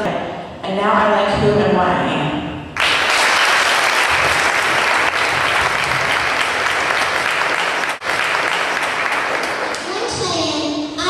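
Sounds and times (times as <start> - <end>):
audience applauding: 2.8 - 10.0.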